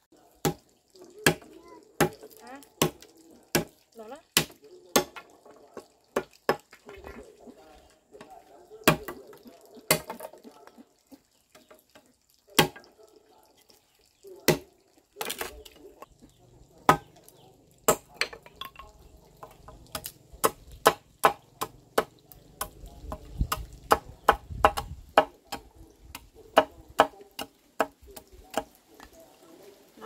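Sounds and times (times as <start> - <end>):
blade chopping wood: 9.9 - 10.4, 16.9 - 17.1, 19.9 - 27.9.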